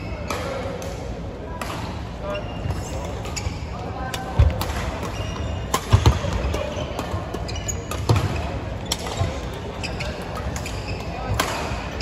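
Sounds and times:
murmur of busy hall: 0:00.0 - 0:12.0
racket hitting shuttlecock: 0:04.1 - 0:09.6.

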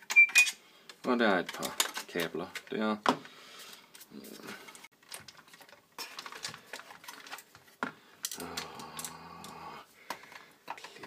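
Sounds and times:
plastic and metal parts clicking: 0:00.0 - 0:02.8.

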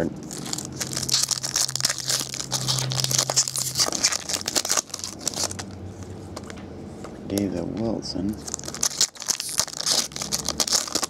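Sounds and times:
foil wrapper crinkling and tearing: 0:00.0 - 0:05.8, 0:08.4 - 0:11.0
cards rustling: 0:00.2 - 0:06.6, 0:08.4 - 0:11.0.

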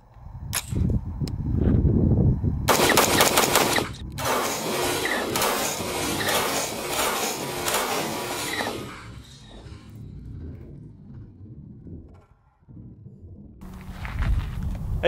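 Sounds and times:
low rumble: 0:00.0 - 0:15.0
rifle gunshots: 0:02.7 - 0:08.1.

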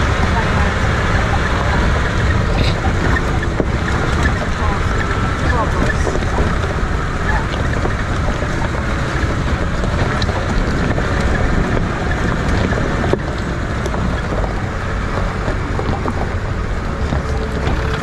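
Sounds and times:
vehicle engine running: 0:00.0 - 0:18.0
wind buffeting microphone: 0:00.0 - 0:18.0.

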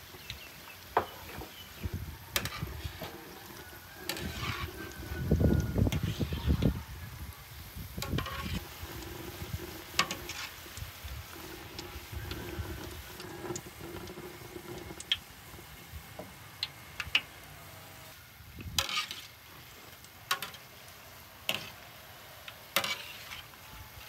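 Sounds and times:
utensil scraping cookware: 0:01.0 - 0:06.7, 0:08.0 - 0:15.2, 0:18.6 - 0:20.7, 0:21.5 - 0:21.8, 0:22.7 - 0:23.6.

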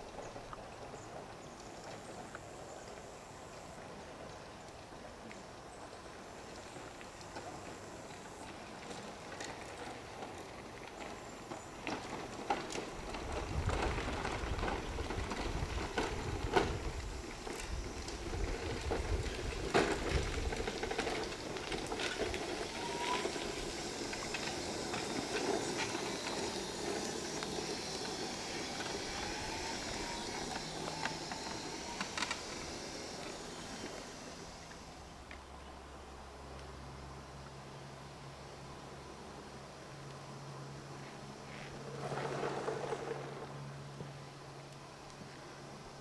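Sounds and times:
tyres crunching on gravel: 0:06.3 - 0:35.0
electric drive whine: 0:06.5 - 0:37.5.

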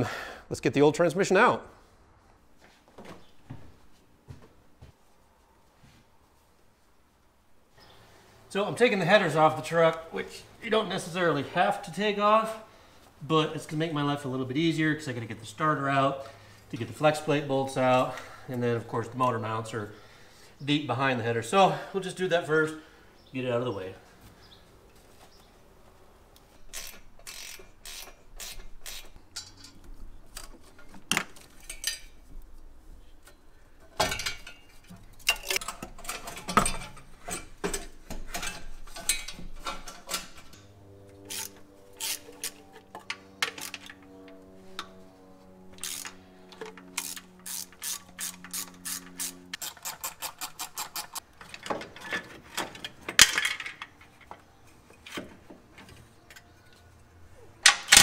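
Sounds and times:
socket ratchet clicking: 0:47.0 - 0:51.2.

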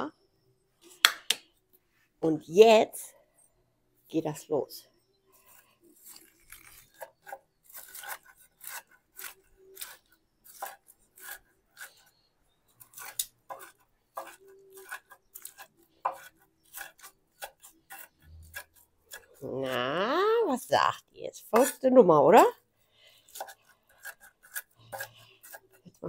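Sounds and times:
blade chopping food: 0:06.1 - 0:12.2, 0:12.8 - 0:19.4, 0:23.3 - 0:26.0.

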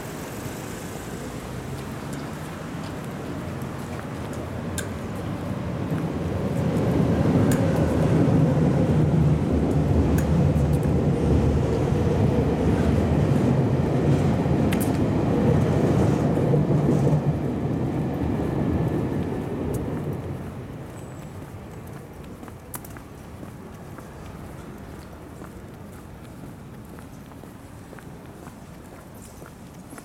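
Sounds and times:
train rumbling overhead: 0:00.0 - 0:22.4.

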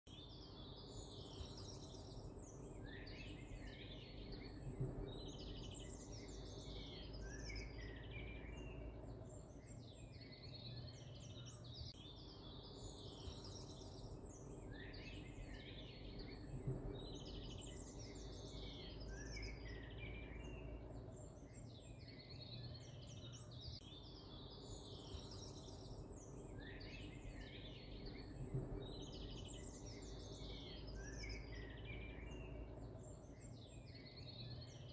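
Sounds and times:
songbirds chirping: 0:00.0 - 0:34.9
faint low hum: 0:00.1 - 0:34.9.

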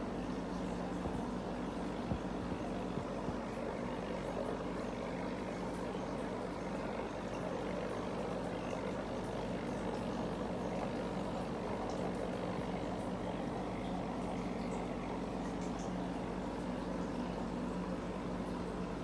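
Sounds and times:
aquarium air pump humming: 0:00.0 - 0:19.0.

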